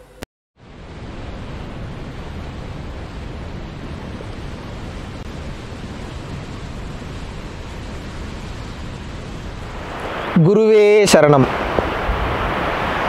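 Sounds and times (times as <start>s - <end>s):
river water rushing over rocks: 9.0s - 13.0s.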